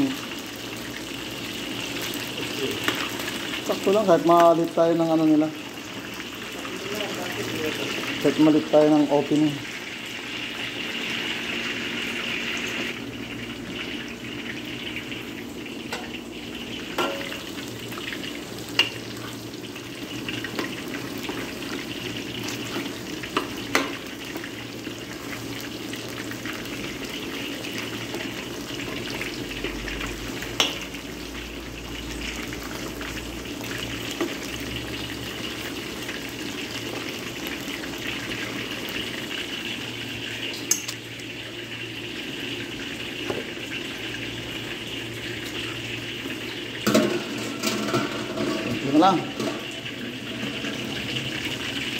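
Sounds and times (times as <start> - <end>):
food deep-frying in oil: 0.0 - 51.9
spoon clicking against wok: 40.7 - 41.0.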